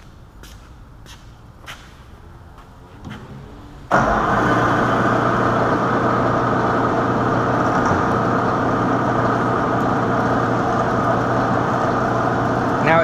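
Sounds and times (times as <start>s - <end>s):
low hum: 2.2s - 13.0s
milling machine cutting metal pipe: 3.9s - 13.0s.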